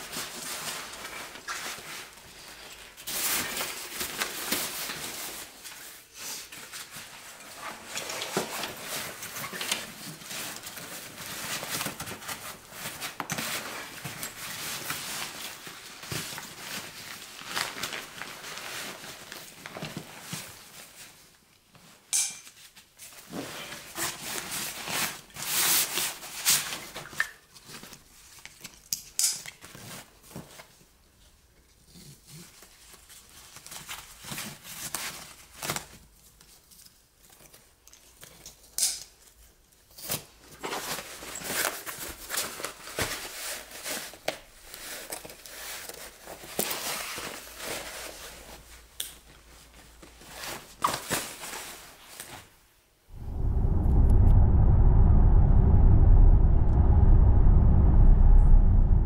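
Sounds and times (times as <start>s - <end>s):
rustling and crinkling packaging: 0.0s - 52.8s.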